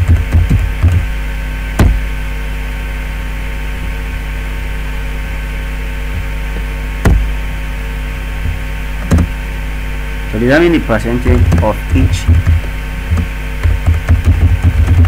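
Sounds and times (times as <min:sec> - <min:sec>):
dull thumps: 0:00.0 - 0:02.2, 0:06.1 - 0:07.5, 0:08.3 - 0:09.4, 0:11.2 - 0:15.0
electrical mains hum: 0:00.0 - 0:15.0.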